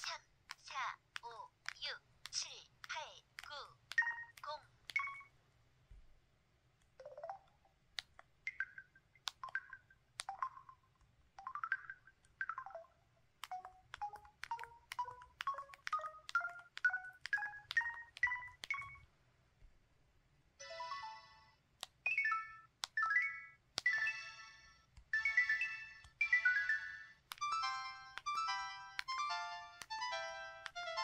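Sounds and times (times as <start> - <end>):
phone keypad blips: 0.0 - 5.3, 8.5 - 10.8, 11.4 - 19.0
two-note beeps rising in pitch: 5.0 - 5.3.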